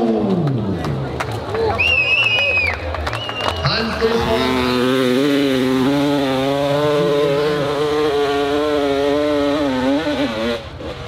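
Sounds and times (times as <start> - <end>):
dirt bike engine at high revs: 3.6 - 11.0.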